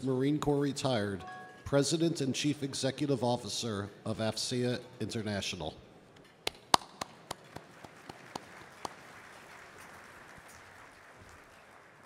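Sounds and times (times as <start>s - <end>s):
sharp single claps: 6.4s - 9.0s
audience applause: 7.2s - 12.0s.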